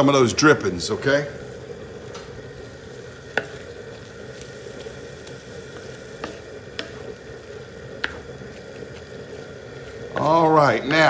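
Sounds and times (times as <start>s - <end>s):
chili sizzling: 0.0s - 11.0s
wooden spatula stirring: 2.9s - 11.0s
spatula tapping on steel: 6.2s - 7.0s, 8.0s - 8.2s.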